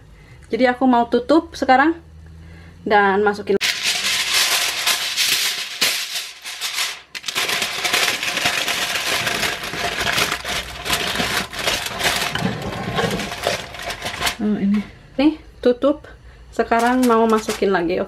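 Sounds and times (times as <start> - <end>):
aluminium foil crinkling: 3.6 - 14.4, 16.7 - 17.8.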